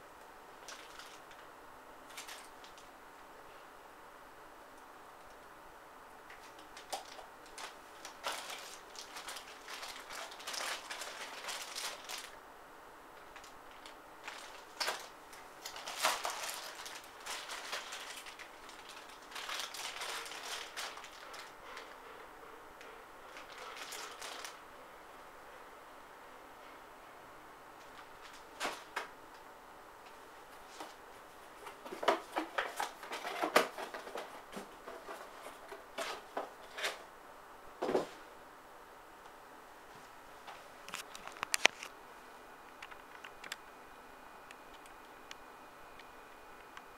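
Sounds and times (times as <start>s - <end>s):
packaging crinkling and rustling: 0.6s - 1.4s, 2.1s - 2.9s, 6.3s - 12.4s, 13.2s - 22.0s, 23.3s - 24.6s, 27.8s - 29.1s, 30.6s - 37.1s, 40.8s - 42.0s.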